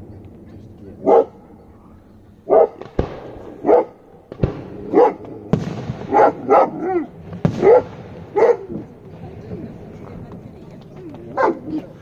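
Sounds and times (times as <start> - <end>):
dog barking: 1.0 - 1.4, 2.5 - 2.8, 3.6 - 4.0, 4.9 - 5.3, 6.1 - 8.8, 11.4 - 11.8
rocket hissing crackle: 1.7 - 10.8
firework bangs: 2.2 - 12.0.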